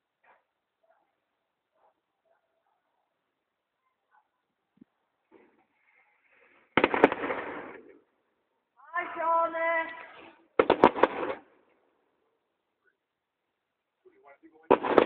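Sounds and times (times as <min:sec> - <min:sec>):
fireworks crackling bangs: 0:06.7 - 0:08.0, 0:09.0 - 0:11.5, 0:14.6 - 0:15.0.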